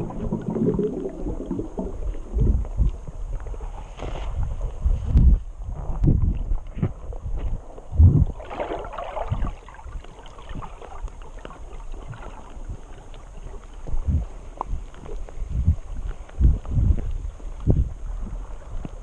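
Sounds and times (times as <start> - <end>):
fizzing rush: 0.0 - 2.6.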